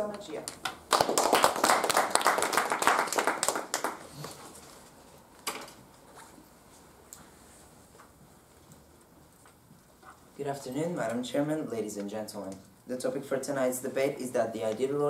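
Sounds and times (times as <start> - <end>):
small group clapping: 0.4 - 4.6.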